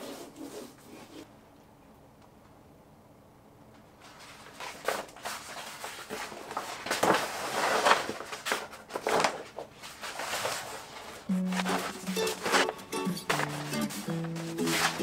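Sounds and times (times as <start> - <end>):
wallpaper rustling and crackling: 3.8 - 15.0.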